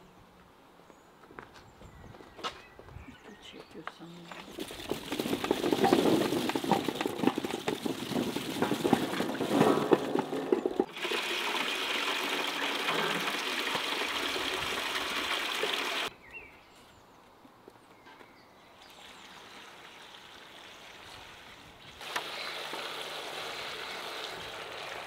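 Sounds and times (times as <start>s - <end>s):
tap water into metal bucket: 4.6s - 16.1s.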